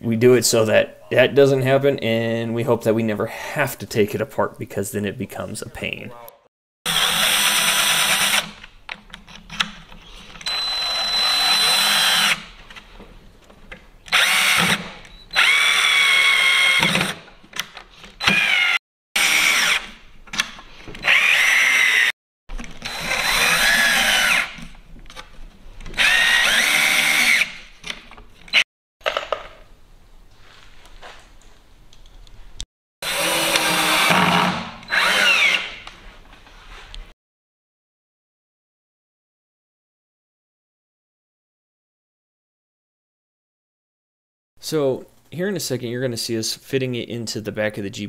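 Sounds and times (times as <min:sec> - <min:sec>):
power drill driving screws: 0:06.9 - 0:08.6, 0:10.4 - 0:12.5, 0:14.1 - 0:17.3, 0:18.2 - 0:20.0, 0:21.0 - 0:22.1, 0:22.7 - 0:24.6, 0:25.9 - 0:27.7, 0:33.0 - 0:35.9.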